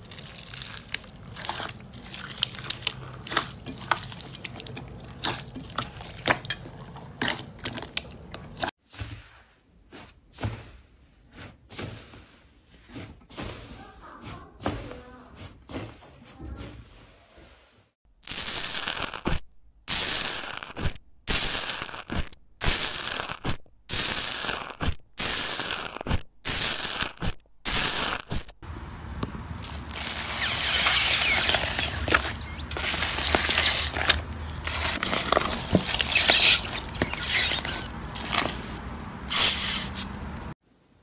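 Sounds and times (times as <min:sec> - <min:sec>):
slime crackling and popping: 0:00.0 - 0:08.4, 0:18.2 - 0:28.6, 0:29.6 - 0:40.0
slime crunching: 0:00.0 - 0:08.7, 0:29.5 - 0:40.2.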